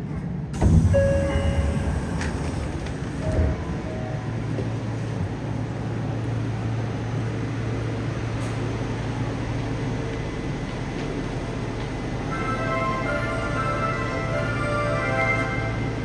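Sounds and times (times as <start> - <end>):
continuous low hum: 0.0 - 16.0.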